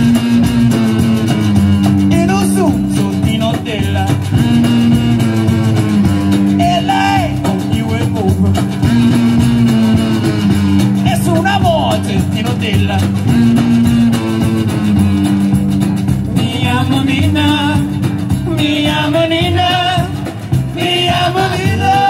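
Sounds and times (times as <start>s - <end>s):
drums: 0.0s - 22.0s
electric guitar: 0.0s - 22.0s
upright bass: 0.0s - 22.0s.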